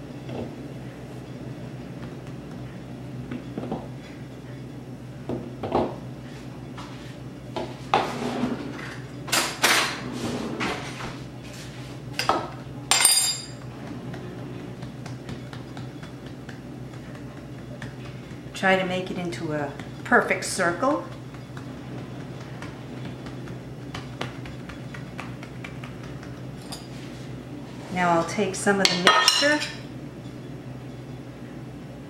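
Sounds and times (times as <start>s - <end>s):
utensils clattering on countertop: 12.2s - 13.6s, 28.9s - 29.8s.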